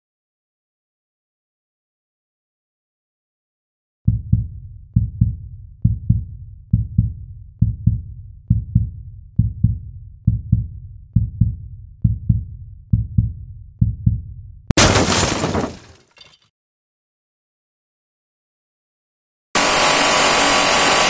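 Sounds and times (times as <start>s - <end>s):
deep heartbeat-like thumps: 4.1s - 14.8s.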